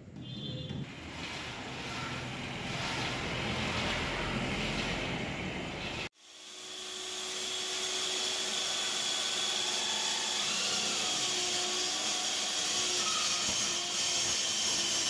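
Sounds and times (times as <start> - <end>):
wood being cut: 0.9 - 15.0
saw motor whine: 6.2 - 15.0.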